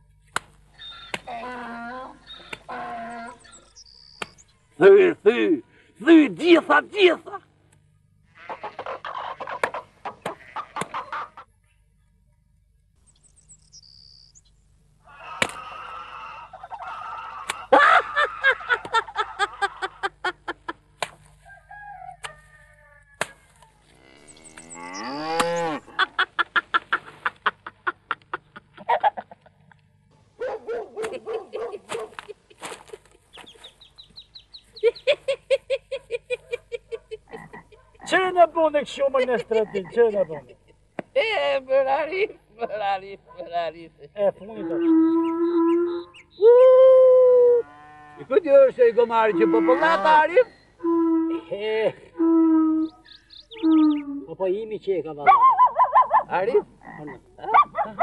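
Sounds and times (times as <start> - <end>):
hen-like clucking and cackling: 0.8 - 4.3, 8.3 - 11.6, 15.0 - 29.8, 30.5 - 38.3, 38.9 - 41.1, 44.5 - 54.3, 55.2 - 58.0
long rising and falling call: 52.2 - 54.2.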